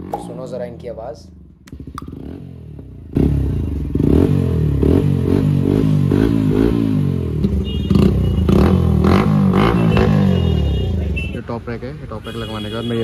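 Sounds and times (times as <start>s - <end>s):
motorcycle throttle blips: 0.0s - 5.0s.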